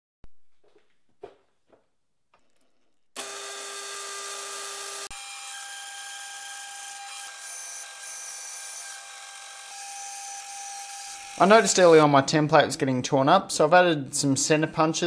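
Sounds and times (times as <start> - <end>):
milling cutter whining through steel: 3.2 - 12.0.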